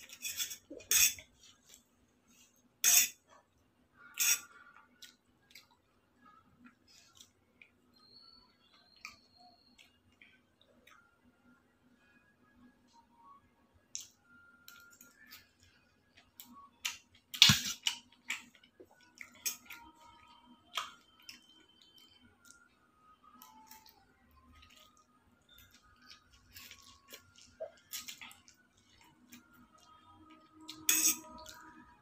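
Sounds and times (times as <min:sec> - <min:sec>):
chewing: 0:04.4 - 0:07.8, 0:17.9 - 0:31.8
metal fork clinking on plates: 0:30.9 - 0:31.5.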